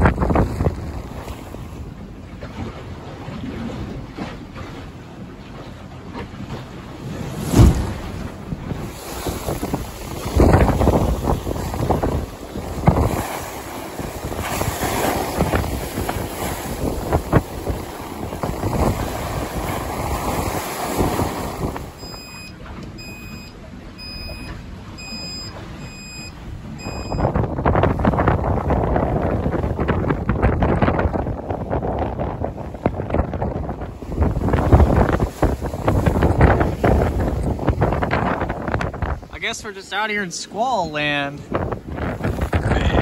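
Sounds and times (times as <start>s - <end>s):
sea noise: 0.0s - 43.0s
wind gusting over microphone: 0.0s - 43.0s
high electronic alarm beeps: 22.0s - 27.3s.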